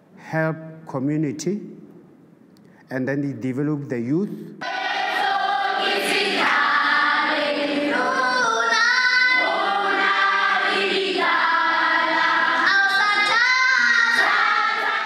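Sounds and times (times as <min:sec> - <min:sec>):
choir singing: 0:04.6 - 0:15.0.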